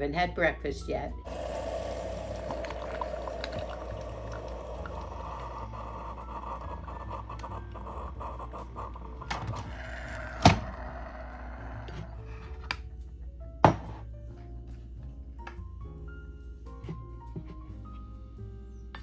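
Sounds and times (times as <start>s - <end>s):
coffee maker brewing: 1.2s - 12.3s
coffee pouring into mug: 1.3s - 6.8s.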